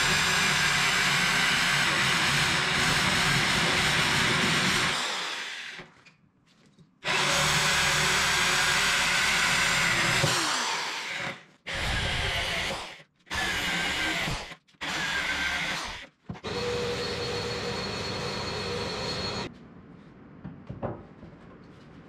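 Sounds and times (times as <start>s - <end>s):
electric drill boring into wood: 0.0s - 5.9s, 7.0s - 19.5s
shop vacuum motor whine: 16.4s - 19.5s.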